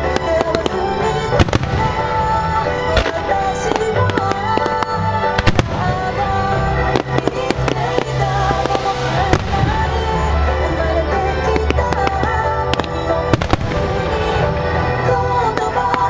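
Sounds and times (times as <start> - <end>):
fireworks bursting in sharp bangs: 0.0 - 16.0
music playing: 0.0 - 16.0.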